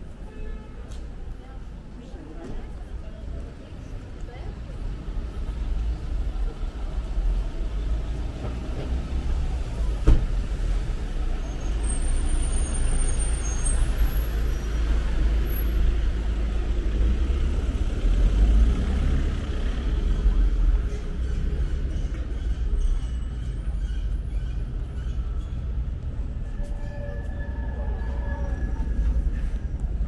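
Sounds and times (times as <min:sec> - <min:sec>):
vehicles passing on street: 0:00.0 - 0:30.0.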